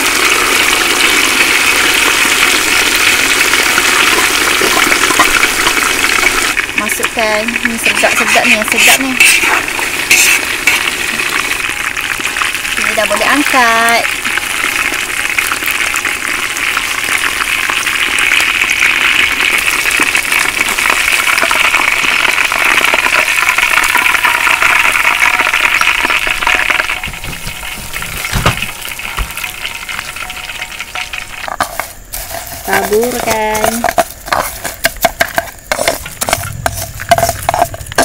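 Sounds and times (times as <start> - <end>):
chicken deep-frying in hot oil: 0.0 - 38.0
knock: 27.0 - 29.4.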